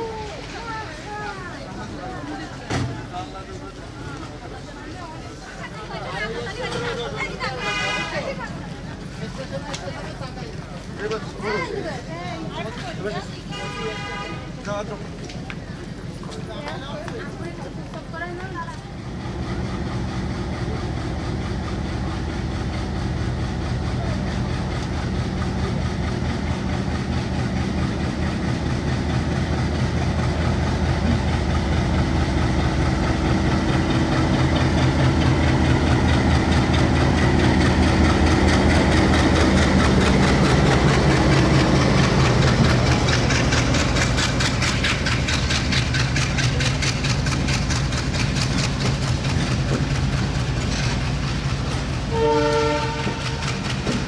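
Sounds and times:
diesel locomotive engine hum: 0.0 - 54.0
wheels clattering over rail joints: 14.6 - 54.0.

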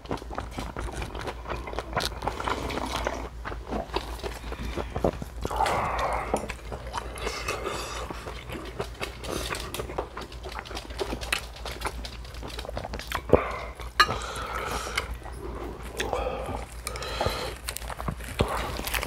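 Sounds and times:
chewing food: 0.0 - 19.0
lettuce wrap crackling: 15.8 - 19.0.

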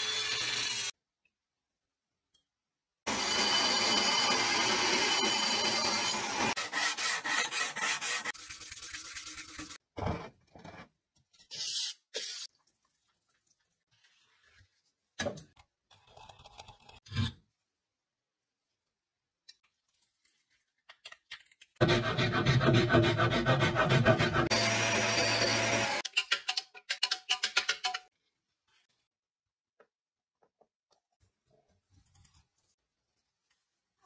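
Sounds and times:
blade sanding rasp: 6.1 - 9.8, 21.8 - 24.8
blade rubbing on sandpaper: 6.6 - 9.8.

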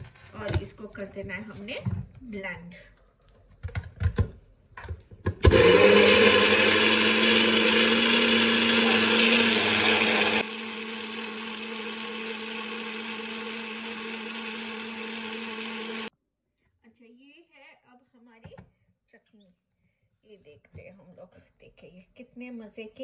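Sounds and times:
blender motor whine: 5.4 - 16.1.

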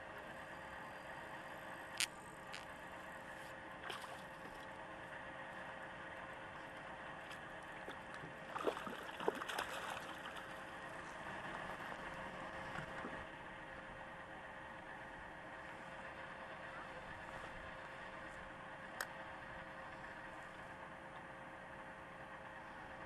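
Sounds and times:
water splashes: 3.8 - 4.7, 7.3 - 10.6.

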